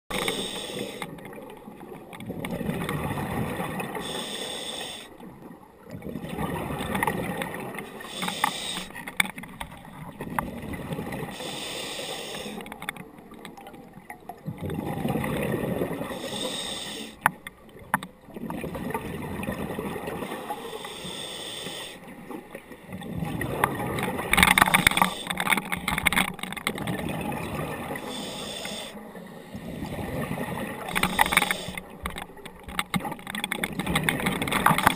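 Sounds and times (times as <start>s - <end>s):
scuba regulator inhale hiss: 0.1s - 1.1s, 3.9s - 5.2s, 7.9s - 9.0s, 11.3s - 12.6s, 16.0s - 17.2s, 20.3s - 22.0s, 28.0s - 29.7s, 30.9s - 31.9s
gurgling exhaled bubbles: 0.2s - 4.2s, 5.3s - 8.8s, 9.7s - 12.6s, 13.3s - 17.2s, 17.8s - 20.6s, 22.1s - 32.4s.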